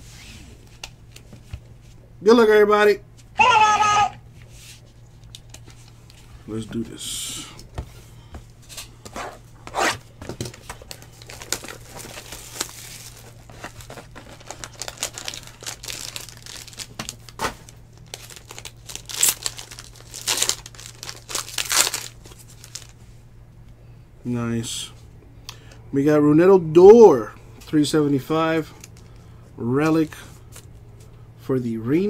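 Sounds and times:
foil wrapper crinkling: 10.4s - 23.0s
foil wrapper ripping: 10.7s - 23.0s.

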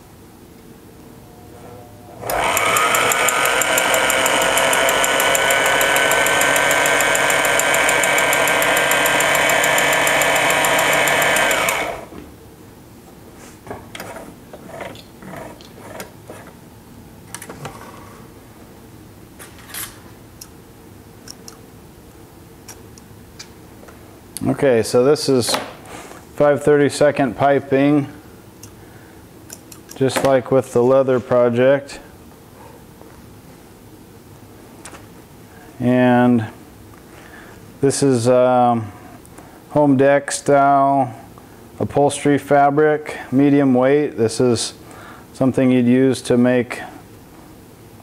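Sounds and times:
sewing machine motor whine: 2.2s - 12.1s.

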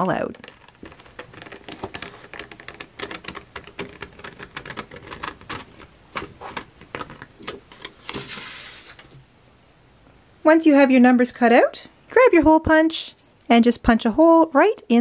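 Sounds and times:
scissors snipping paper: 0.0s - 8.2s
paper rustling: 0.0s - 9.3s.

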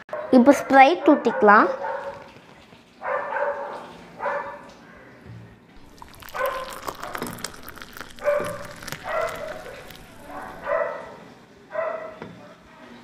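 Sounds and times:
dog barking: 0.1s - 2.3s, 3.0s - 4.7s, 6.0s - 12.2s
soda fizzing over ice: 5.8s - 10.7s.

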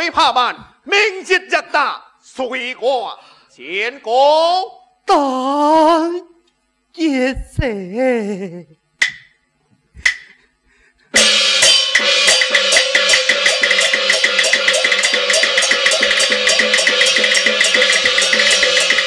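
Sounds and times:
sharp percussion strikes: 9.0s - 9.4s, 10.0s - 10.4s, 11.1s - 19.0s
drums gongs and cymbals beating: 11.1s - 19.0s.

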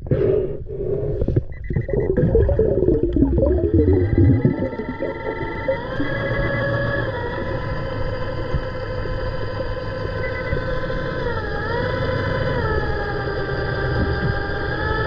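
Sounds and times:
underwater mechanical drone: 0.0s - 15.0s
low rumble: 0.8s - 9.8s
whining tones: 1.5s - 15.0s.

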